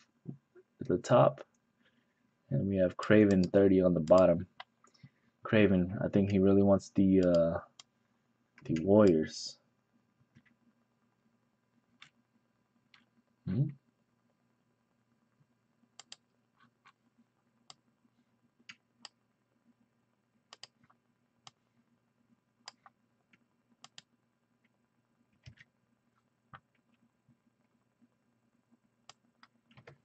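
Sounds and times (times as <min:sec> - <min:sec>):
faint low hum: 0:00.0 - 0:30.0.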